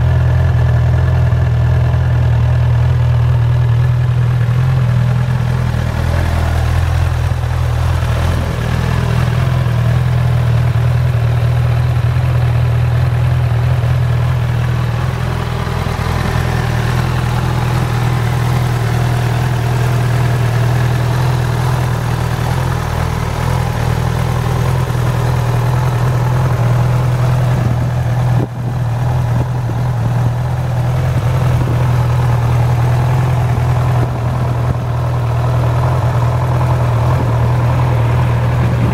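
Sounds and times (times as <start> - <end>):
motorcycle engine idling: 0.0 - 38.9.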